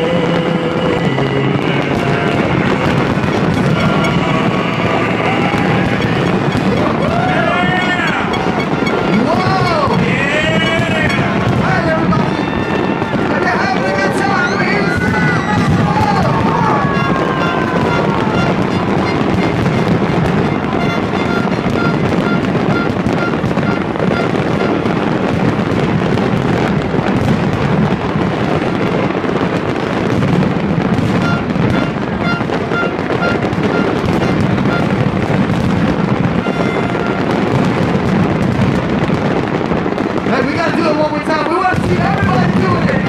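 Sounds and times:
fireworks bursting and crackling: 0:00.0 - 0:43.0
music playing: 0:02.0 - 0:12.4.

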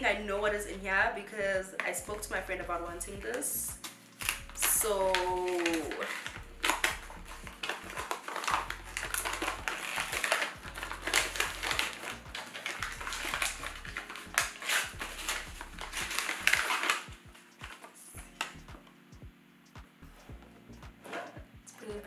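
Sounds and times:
wrapping paper rustling and crinkling: 0:03.8 - 0:18.6.

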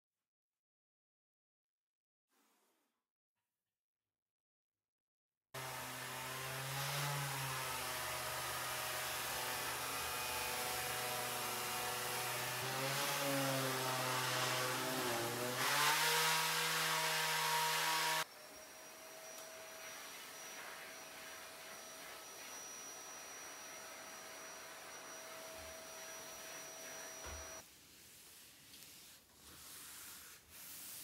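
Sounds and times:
electric sheet sander running: 0:05.6 - 0:27.6.

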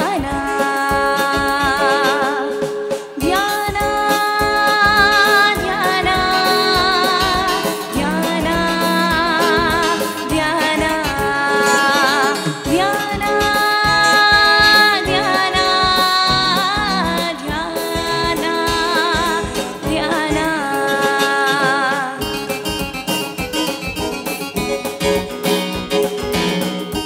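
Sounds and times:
woman singing with vibrato: 0:00.0 - 0:22.6
instrumental accompaniment: 0:00.0 - 0:27.0.

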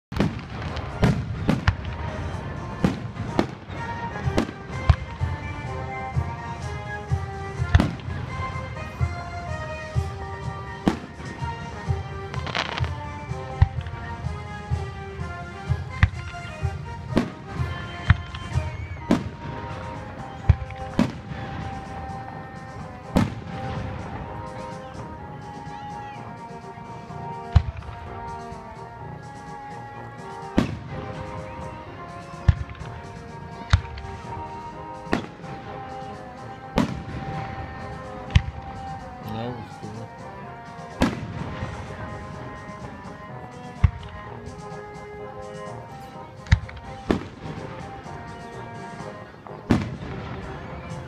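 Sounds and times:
firework shells bursting: 0:00.1 - 0:05.7, 0:10.7 - 0:14.1, 0:30.3 - 0:39.2
fireworks bangs: 0:00.1 - 0:51.0
music with held notes: 0:00.1 - 0:51.0.

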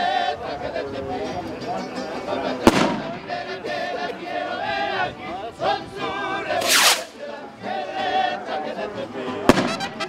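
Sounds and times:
men singing together: 0:00.0 - 0:01.3, 0:02.2 - 0:09.7.

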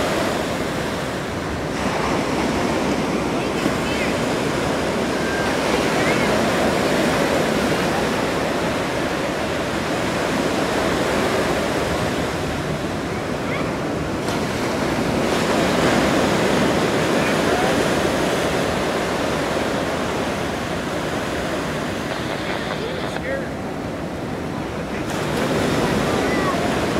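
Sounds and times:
sea waves: 0:00.0 - 0:26.9
wind on microphone: 0:18.5 - 0:26.9.

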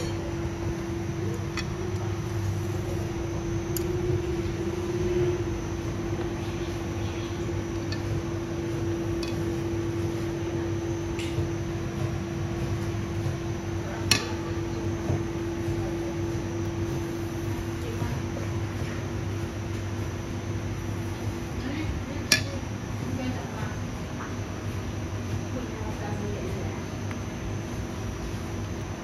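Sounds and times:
steady machine hum: 0:00.0 - 0:29.0
utensils clinking on steel bowls: 0:22.3 - 0:22.6.

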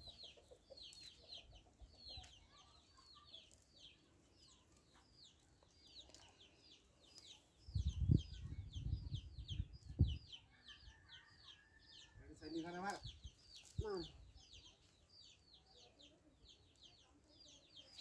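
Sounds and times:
chicks peeping: 0:00.0 - 0:10.9.

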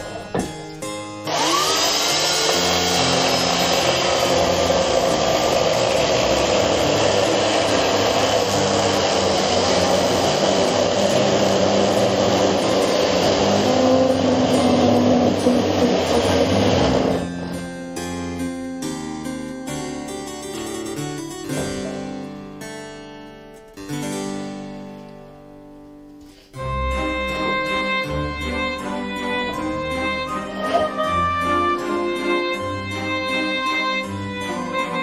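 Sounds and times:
electric chainsaw cutting wood: 0:01.2 - 0:17.3.

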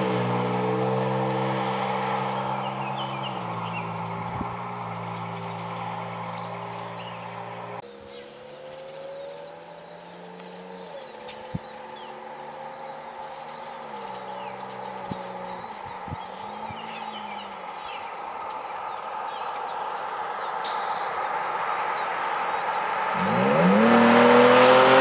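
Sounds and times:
truck exhaust drone: 0:00.0 - 0:19.3, 0:22.8 - 0:25.0
birds chirping: 0:00.0 - 0:25.0.

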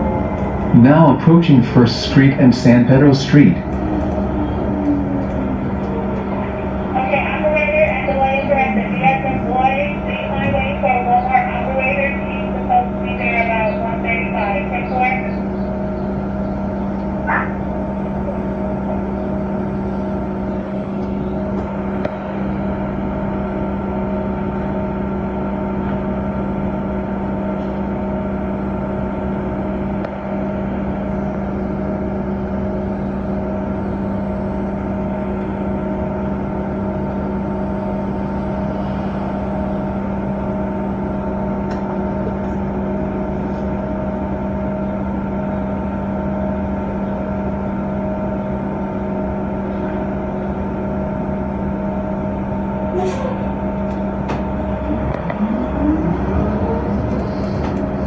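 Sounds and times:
bus engine droning: 0:00.0 - 0:58.0.

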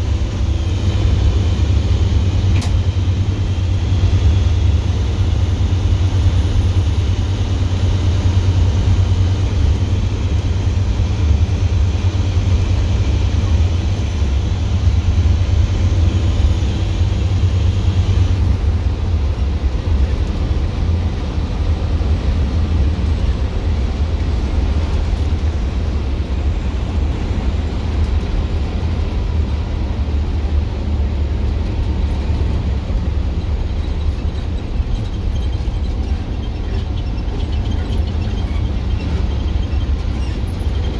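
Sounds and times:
diesel exhaust drone: 0:00.0 - 0:40.9.

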